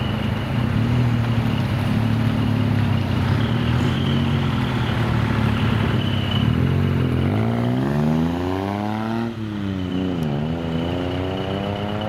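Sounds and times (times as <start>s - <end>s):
truck engine revving: 3.2s - 12.0s.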